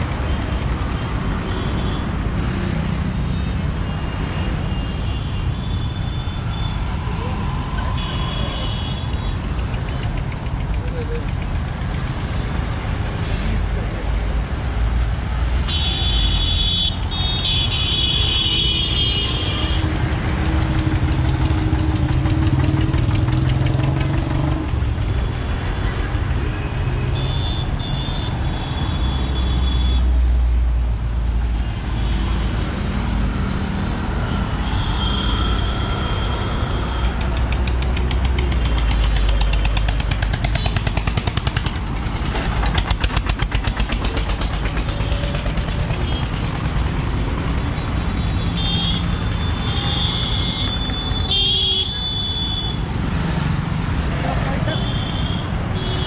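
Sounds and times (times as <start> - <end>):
road traffic rumble: 0.0 - 56.0
vehicle horns honking: 15.6 - 20.0, 26.6 - 30.1, 34.3 - 37.3, 48.2 - 52.9, 54.5 - 56.0.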